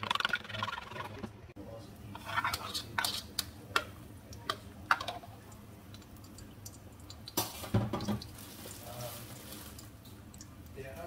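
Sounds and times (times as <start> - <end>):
egg frying: 0.0 - 11.0
kitchenware clatter: 2.1 - 5.3, 7.4 - 8.3
kitchenware clicking and tapping: 2.2 - 5.3, 7.1 - 8.3.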